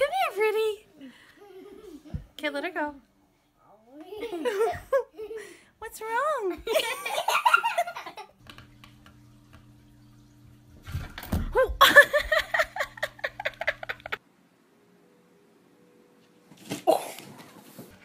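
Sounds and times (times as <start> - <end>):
faint steady hum: 0.0 - 17.3
person laughing in quick bursts: 11.8 - 14.2.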